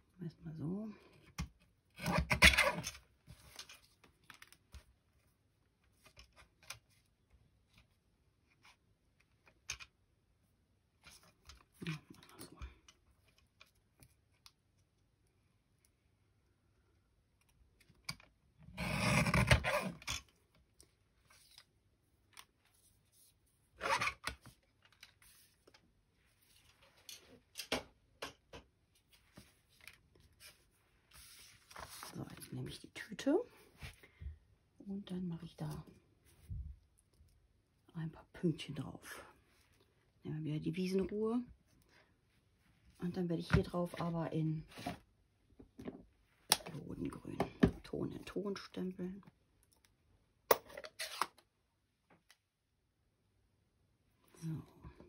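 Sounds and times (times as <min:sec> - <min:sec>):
paper clicks and rustles: 0:29.2 - 0:32.5.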